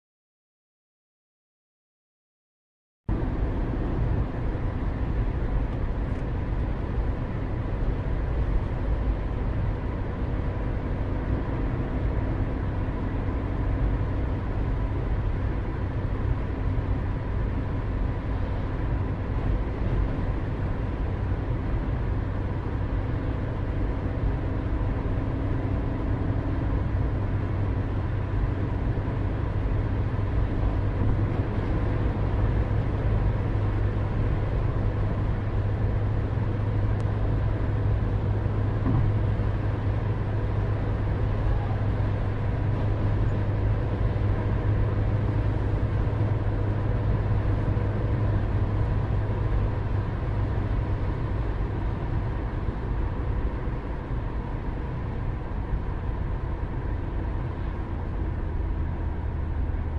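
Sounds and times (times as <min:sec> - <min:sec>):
outdoor background rumble: 0:03.1 - 0:59.9.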